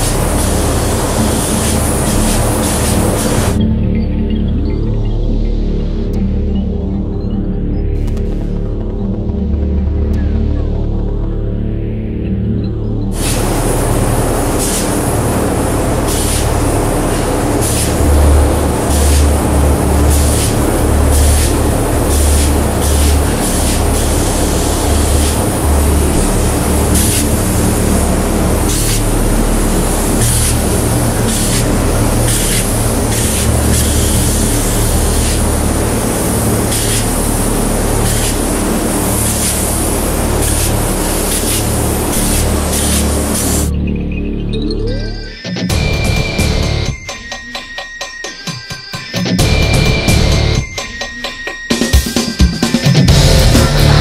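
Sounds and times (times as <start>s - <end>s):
spray gun hissing: 0.0s - 3.6s, 13.2s - 43.7s
steady low hum: 0.0s - 44.6s
low machine throb: 0.0s - 47.1s, 49.4s - 50.7s, 53.1s - 54.0s.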